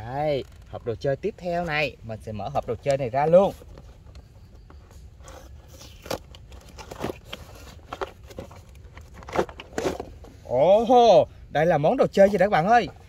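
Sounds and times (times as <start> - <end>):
packaging rustling and crinkling: 2.4 - 10.3.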